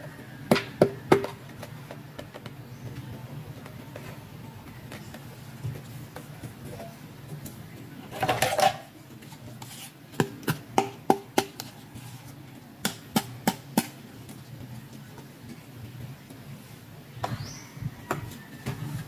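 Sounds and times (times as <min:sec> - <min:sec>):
plastic toys clattering: 0:08.1 - 0:08.9.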